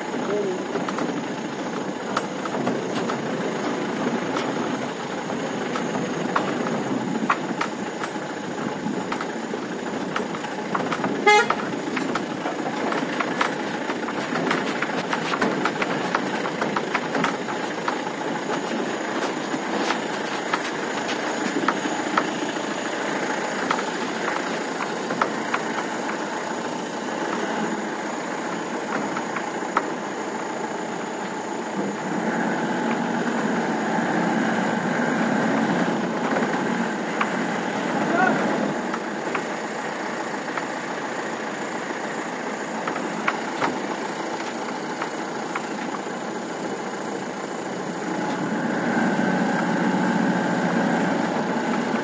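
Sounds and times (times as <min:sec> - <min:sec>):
pickup engine running: 0:00.0 - 0:52.0
body rattles and knocks: 0:00.1 - 0:30.0
horn toot: 0:11.2 - 0:11.7.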